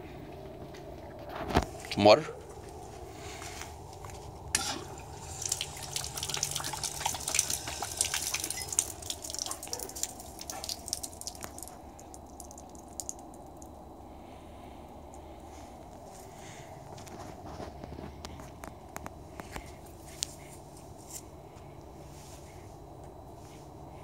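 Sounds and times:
hose water splashing on concrete: 4.0 - 13.8
dog lapping water: 4.8 - 13.3.

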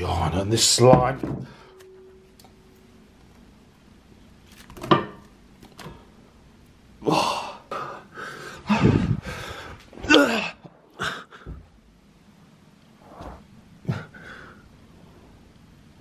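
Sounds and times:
man gasping and huffing: 7.0 - 11.6.

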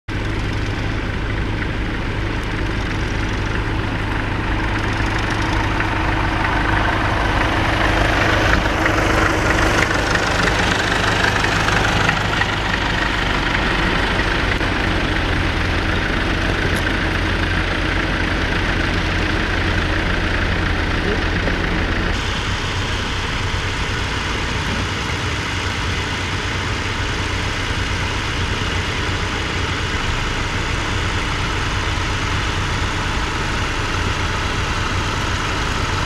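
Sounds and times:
tractor engine running: 0.1 - 36.0.

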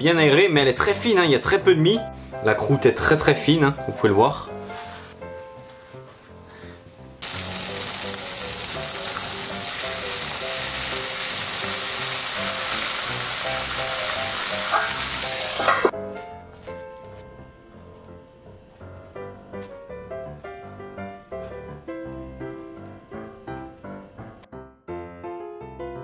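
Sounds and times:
light background music: 0.0 - 24.5
cutlets sizzling in frying pan: 7.2 - 15.9.

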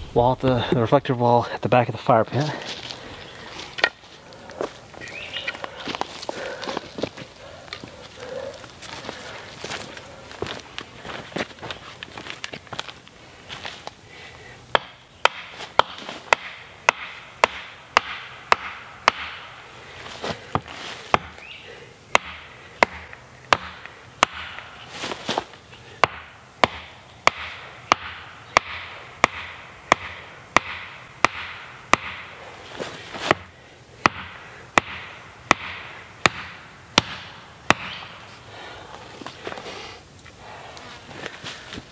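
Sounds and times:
axe striking wooden pole: 14.7 - 19.6, 20.5 - 21.4, 22.1 - 24.8, 26.0 - 32.3, 33.2 - 38.2.

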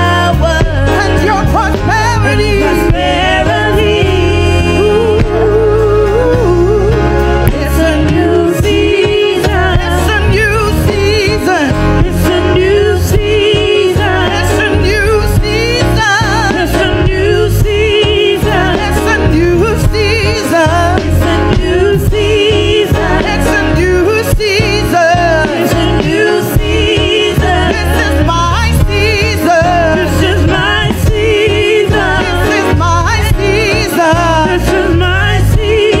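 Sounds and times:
electronic keyboard: 0.0 - 36.0
women singing with vibrato: 0.0 - 36.0
steady beat: 7.5 - 36.0.

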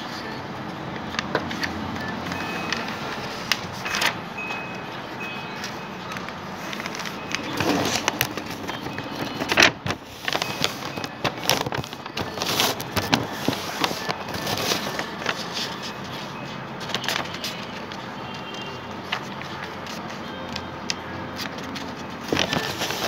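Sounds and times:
paper rustling and crackling: 5.6 - 23.0.

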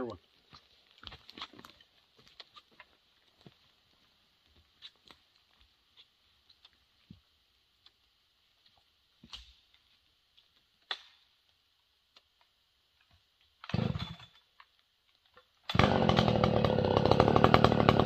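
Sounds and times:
footsteps on twigs: 0.3 - 7.2.

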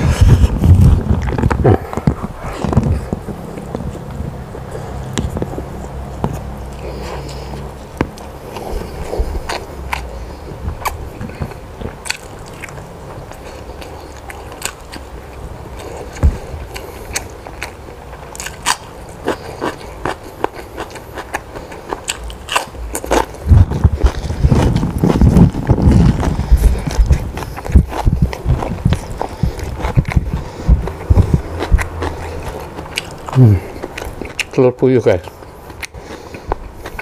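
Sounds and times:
person chewing and biting: 0.0 - 37.0
crisp crunches and clicks: 15.8 - 37.0.

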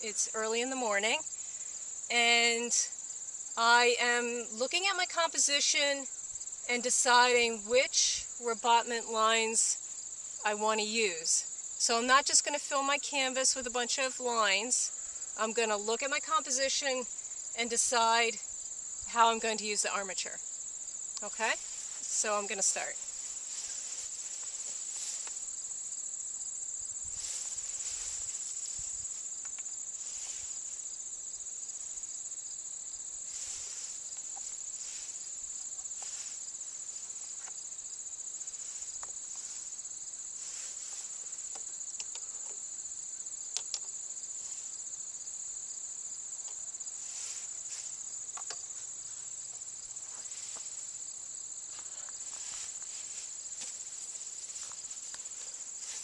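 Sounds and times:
crickets chirping: 0.0 - 56.0
faint ticks and taps: 40.9 - 42.6, 43.5 - 44.0, 48.3 - 48.7.

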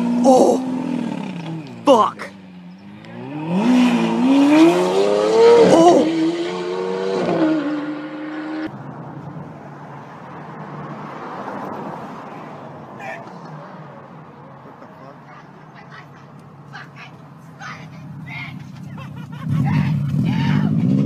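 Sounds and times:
car engine revving hard: 2.9 - 8.7, 19.4 - 21.0.

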